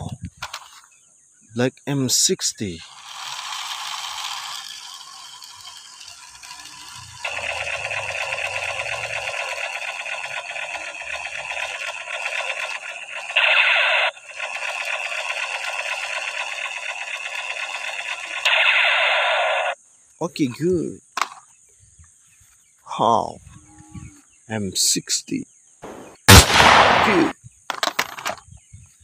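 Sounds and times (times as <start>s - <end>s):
toy gun electronic firing: 2.8s - 19.8s, 25.8s - 27.3s.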